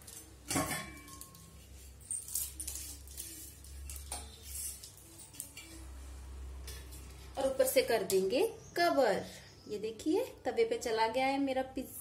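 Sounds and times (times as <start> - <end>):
metal kitchenware clanking: 0.0 - 5.8.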